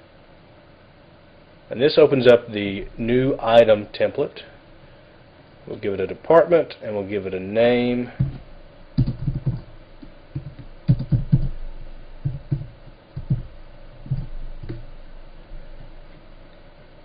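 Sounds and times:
computer keyboard typing: 0:09.0 - 0:11.6, 0:12.2 - 0:14.8.

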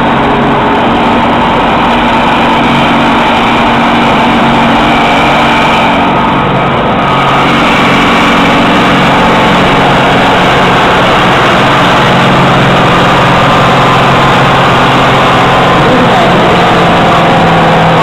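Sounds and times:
tractor diesel engine at full load: 0:00.0 - 0:18.0.

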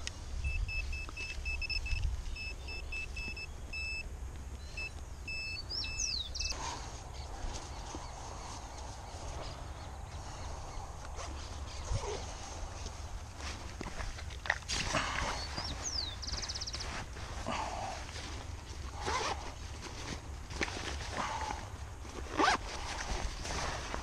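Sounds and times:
handling rustle: 0:06.8 - 0:24.0.

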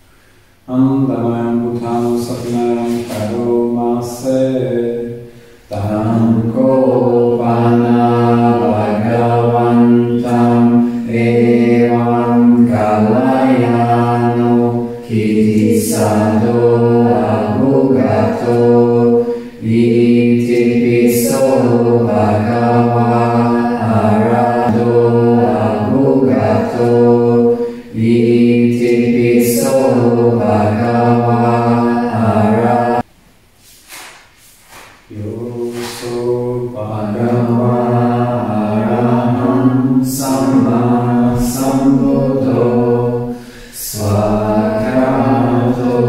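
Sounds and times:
low monotone chanting: 0:00.7 - 0:33.1, 0:35.1 - 0:46.0.

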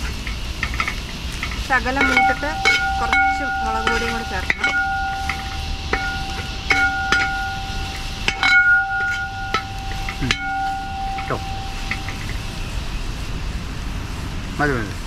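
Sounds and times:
metal spoon knocking on pot: 0:01.5 - 0:12.4.

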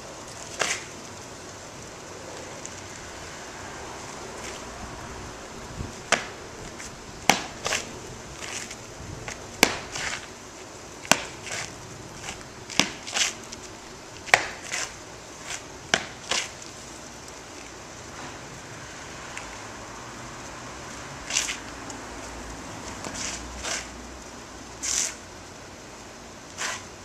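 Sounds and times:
sharp cracks from strikes: 0:14.3 - 0:14.9.

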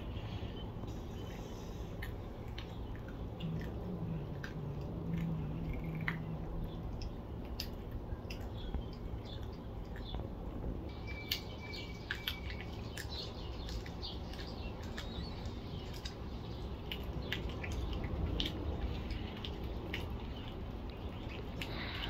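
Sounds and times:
kittens chewing and licking: 0:00.0 - 0:22.0
steady low rumble: 0:00.0 - 0:22.0.

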